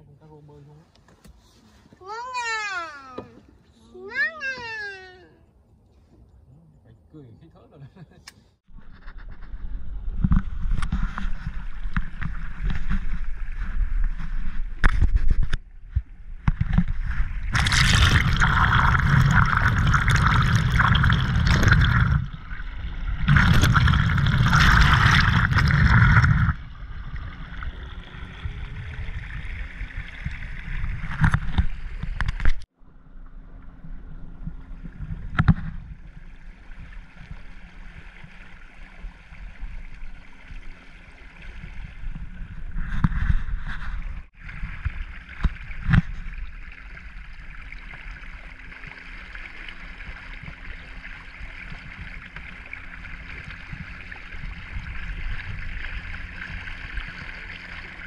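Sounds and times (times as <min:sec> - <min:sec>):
water rushing along canoe hull: 0:08.7 - 0:32.8, 0:33.6 - 0:58.0
steady low rumble: 0:08.7 - 0:58.0
harsh splashing at water surface: 0:16.9 - 0:32.1.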